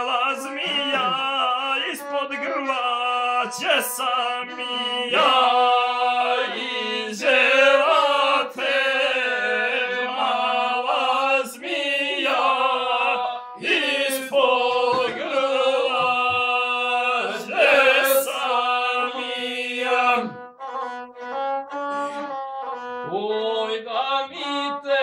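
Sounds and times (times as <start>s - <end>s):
man singing folk verses: 0.0s - 20.4s, 23.0s - 25.0s
bowed string instrument: 0.0s - 25.0s.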